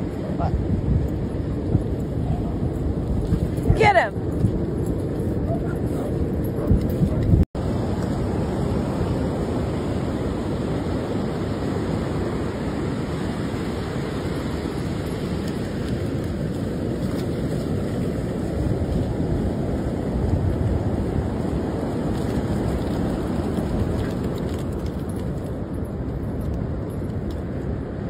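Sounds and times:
wind on microphone: 0.0s - 28.0s
ocean surf breaking: 7.6s - 23.9s.

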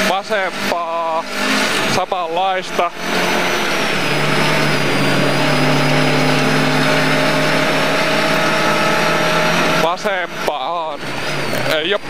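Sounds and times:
car engine at steady revs: 0.0s - 12.0s
road noise: 0.0s - 12.0s.

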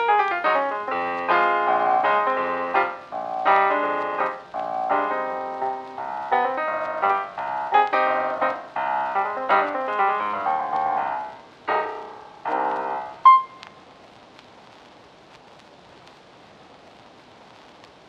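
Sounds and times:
piano music: 0.0s - 13.7s
faint steady hiss: 0.0s - 18.0s
bright ringing piano note: 0.9s - 13.6s.

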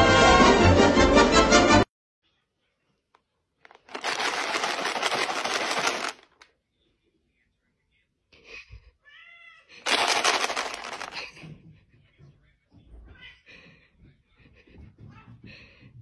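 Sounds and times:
loud rapid rattling: 3.8s - 6.4s, 9.8s - 11.3s
cat meowing: 9.0s - 9.7s.

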